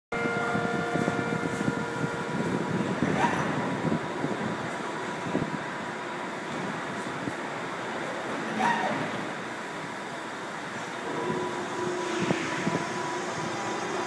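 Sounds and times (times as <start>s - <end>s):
subway train wheels rumbling: 0.1s - 14.0s
steady tones: 10.6s - 14.0s.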